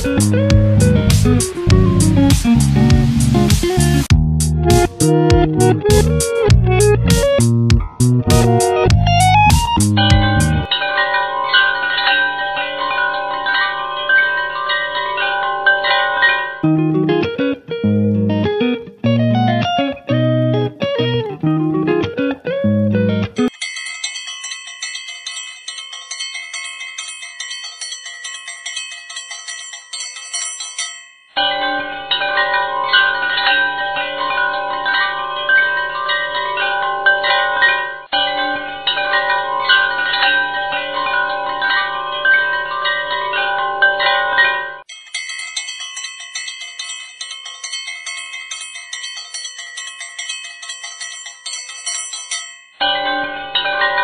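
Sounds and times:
lower instrumental music: 0.0s - 10.8s, 16.6s - 23.5s
chime-like high tones: 0.0s - 18.4s, 23.3s - 54.0s.

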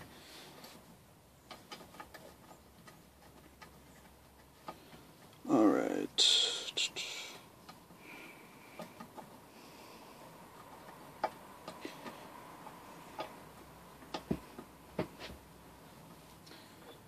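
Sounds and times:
clicks and taps of metal parts: 10.6s - 15.4s.

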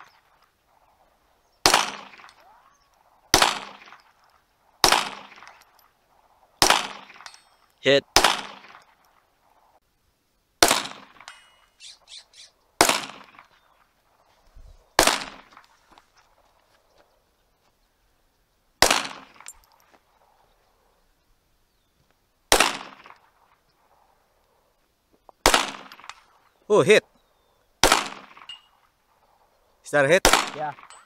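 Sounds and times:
pistol shots: 1.6s - 4.2s, 4.8s - 5.8s, 6.6s - 7.4s, 8.1s - 9.0s, 10.6s - 11.5s, 12.8s - 13.6s, 15.0s - 15.7s, 18.8s - 19.5s, 22.5s - 23.3s, 25.4s - 26.3s, 27.8s - 28.6s, 30.2s - 31.0s
light metallic clinks: 5.4s - 6.0s, 7.2s - 7.8s, 11.2s - 11.8s, 19.3s - 20.0s, 28.4s - 28.9s, 30.8s - 31.0s.

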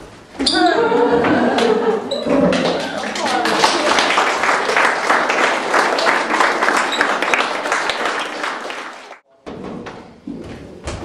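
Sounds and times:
audience applauding: 2.5s - 9.2s.

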